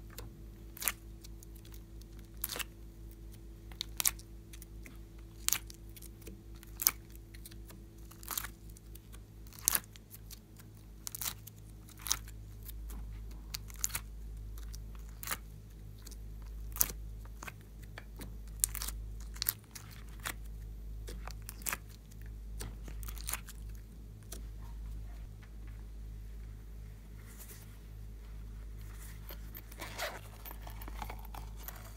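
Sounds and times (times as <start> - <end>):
low steady hum: 0.0 - 31.9.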